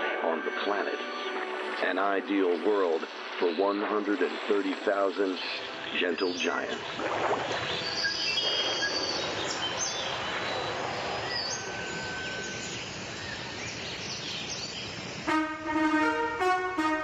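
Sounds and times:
birds chirping: 0.7s - 17.0s
steady hiss: 0.8s - 16.6s
brass music: 15.3s - 17.0s.

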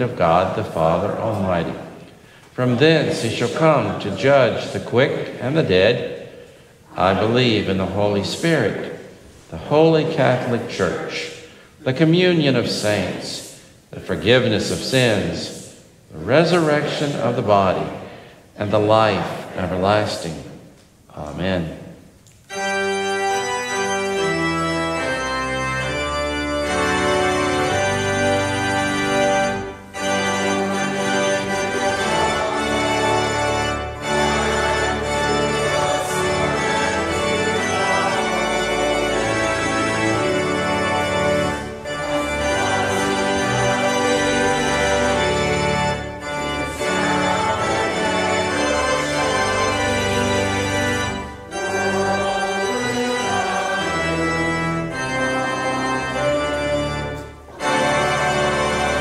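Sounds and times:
church organ playing chords: 0.0s - 59.0s.

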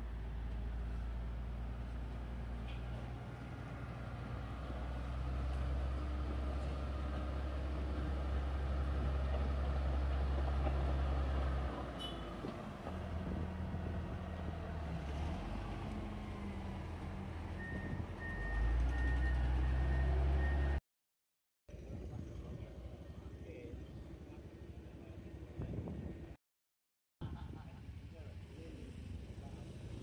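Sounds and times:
heavy diesel engine droning: 0.0s - 20.8s.

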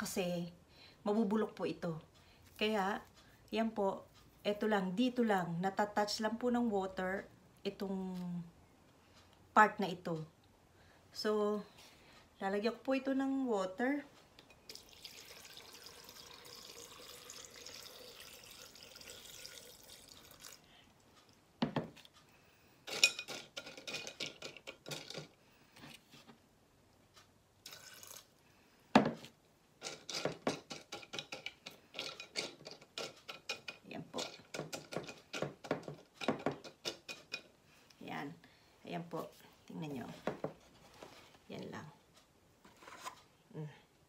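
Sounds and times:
water pouring into vase: 14.7s - 20.7s, 27.6s - 28.3s
pebbles rattling against glass: 22.9s - 25.3s, 29.8s - 37.4s.

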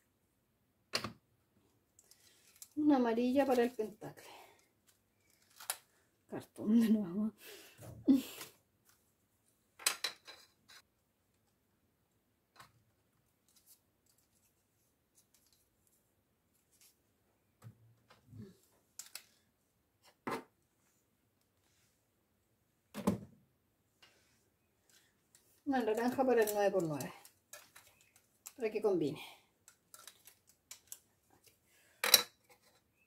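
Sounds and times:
plastic cubes clicking on wooden shelf: 9.8s - 10.8s, 25.9s - 28.6s, 29.6s - 31.1s.

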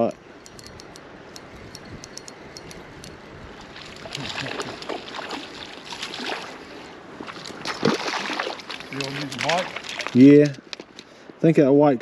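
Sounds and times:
creek water flowing: 1.0s - 11.4s
fish splashing in water: 3.6s - 10.2s.

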